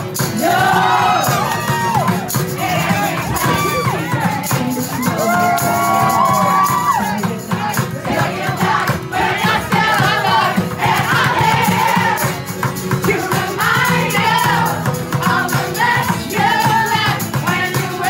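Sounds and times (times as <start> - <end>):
acoustic guitar: 0.0 - 18.0
crowd singing along: 0.0 - 18.0
tambourine shaken: 0.0 - 18.0
woman and man singing: 0.2 - 18.0
crowd clapping: 1.2 - 7.2.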